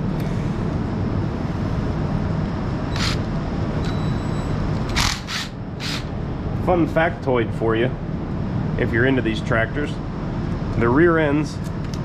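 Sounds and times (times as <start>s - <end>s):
low mechanical drone: 0.0s - 12.0s
impact driver spinning bolt: 2.9s - 3.3s, 4.9s - 6.1s.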